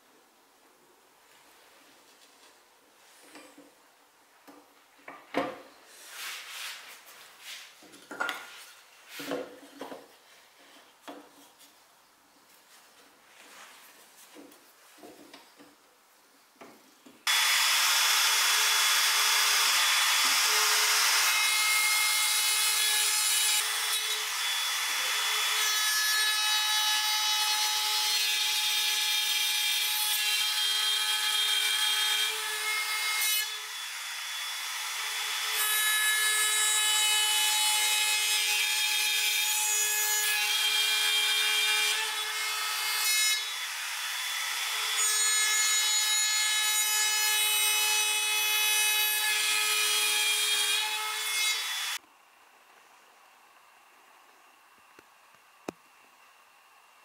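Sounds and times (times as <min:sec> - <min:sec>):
knocks and scrapes of wood: 0:04.5 - 0:11.8, 0:13.0 - 0:15.8
power tool cutting wood: 0:17.3 - 0:52.0.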